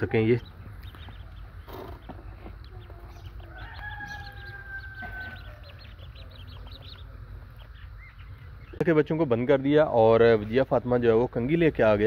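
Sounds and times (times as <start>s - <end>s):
long steady bird call: 0.0s - 9.2s
ducklings peeping: 0.0s - 12.0s.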